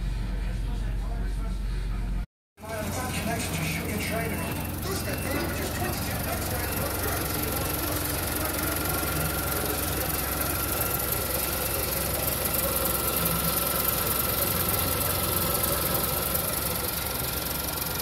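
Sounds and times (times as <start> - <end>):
faint steady whine: 0.0 - 18.0
car engine idling: 2.6 - 18.0.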